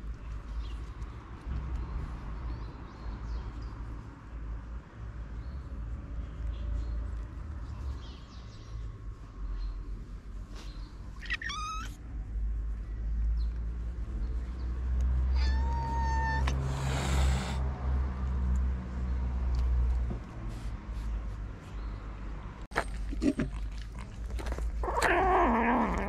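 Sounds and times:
cat meowing: 11.2s - 12.0s, 15.3s - 16.7s.

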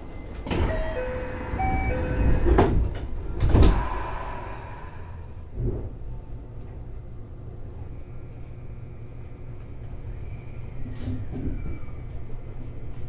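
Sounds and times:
train door chime: 0.4s - 3.0s
sliding doors thumping shut: 0.5s - 4.0s.

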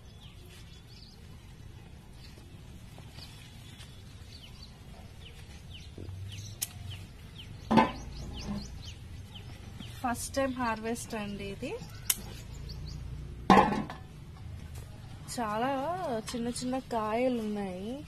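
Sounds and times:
small birds chirping: 0.0s - 13.4s
low steady background noise: 0.0s - 18.0s.

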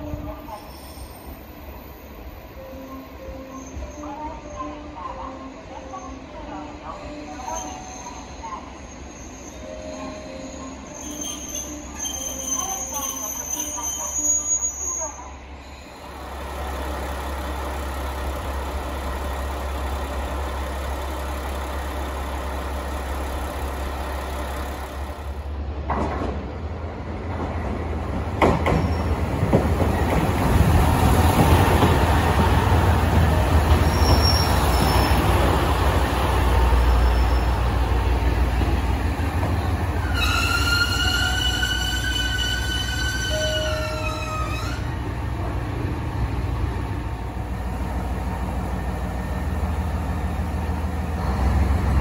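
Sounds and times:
diesel railcar engine humming: 15.3s - 52.0s
train wheels on rail: 16.0s - 52.0s.

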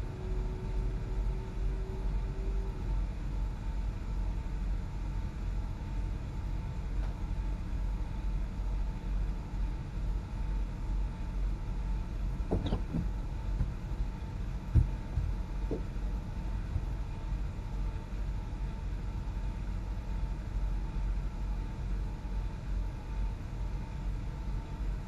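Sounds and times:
vehicle rumble on road: 10.9s - 19.1s.

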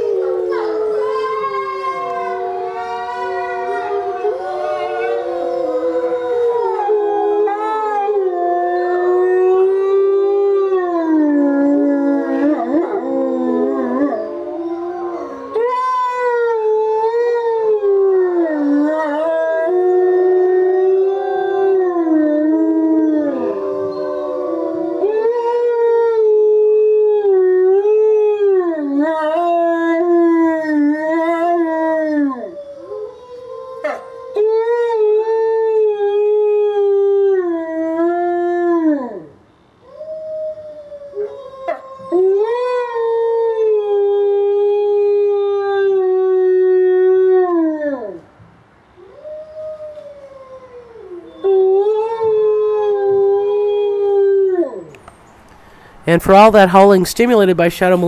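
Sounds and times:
wolves howling in chorus: 0.0s - 39.3s.

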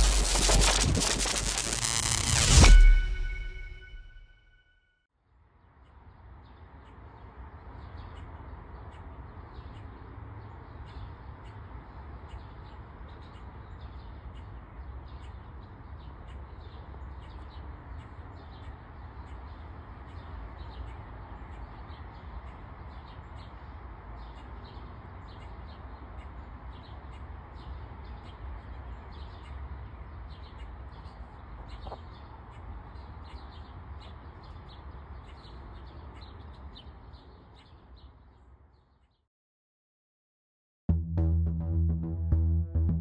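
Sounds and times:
small birds chirping: 5.8s - 39.2s.

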